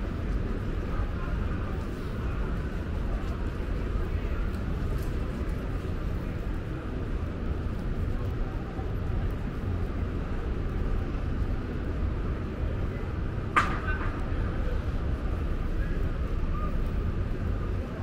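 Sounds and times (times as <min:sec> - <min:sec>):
low city rumble: 0:00.0 - 0:18.0.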